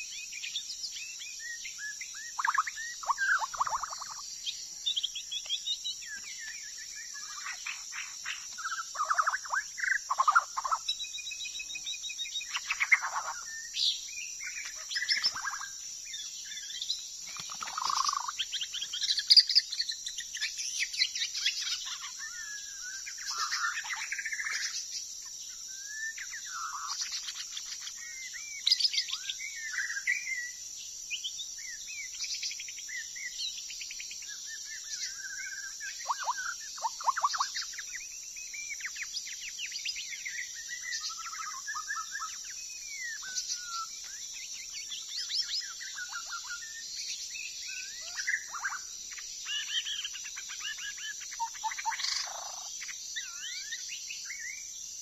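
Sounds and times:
bird singing: 0:00.0 - 0:55.0
high insect drone: 0:00.0 - 0:55.0.

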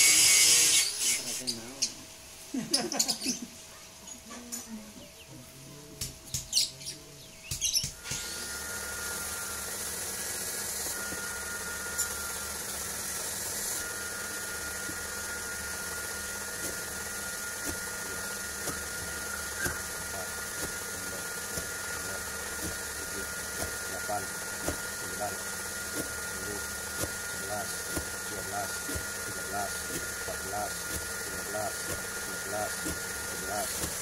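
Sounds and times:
steady hum with high whine: 0:00.0 - 0:34.0
knife chopping rope on wooden board: 0:16.6 - 0:16.9, 0:17.6 - 0:17.9, 0:18.6 - 0:19.9, 0:20.5 - 0:20.8, 0:21.5 - 0:21.8, 0:22.6 - 0:22.9, 0:23.6 - 0:23.8, 0:24.6 - 0:24.9, 0:25.9 - 0:26.2, 0:26.9 - 0:28.2, 0:28.8 - 0:30.2, 0:30.8 - 0:31.2, 0:31.8 - 0:34.0.

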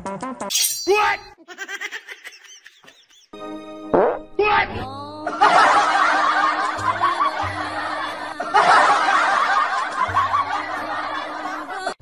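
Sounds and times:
canned laughter: 0:01.4 - 0:03.4, 0:05.3 - 0:12.0
background music: 0:03.4 - 0:12.0.

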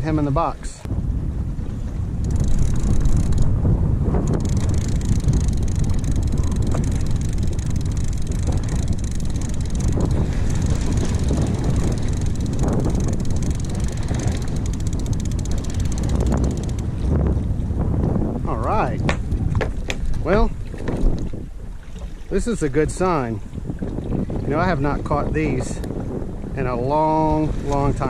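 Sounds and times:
wind buffeting microphone: 0:00.0 - 0:28.0
fishing reel cranking: 0:02.2 - 0:03.6, 0:04.2 - 0:17.0.

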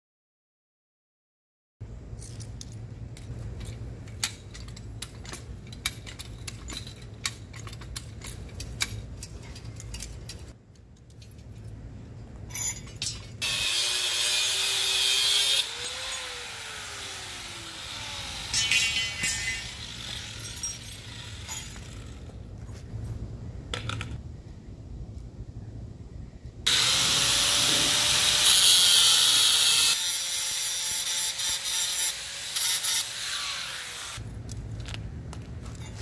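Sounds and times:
metal clicking and clinking: 0:02.2 - 0:13.4
angle grinder grinding: 0:13.4 - 0:22.3, 0:26.7 - 0:34.2.

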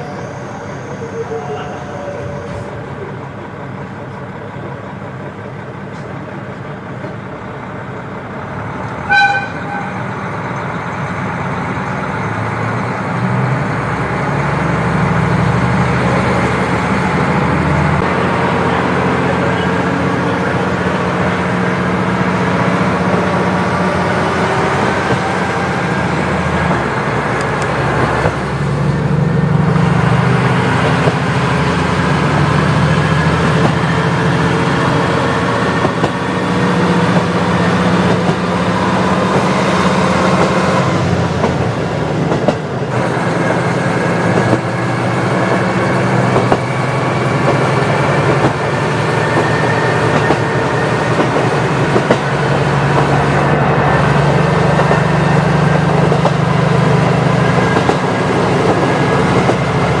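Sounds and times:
diesel railcar engine running: 0:00.0 - 1:00.0
train horn blast: 0:09.0 - 0:10.1.

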